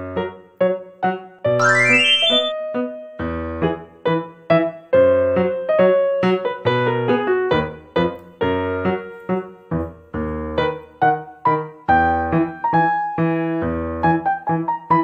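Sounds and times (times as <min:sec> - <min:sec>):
piano music: 0:01.5 - 0:03.6.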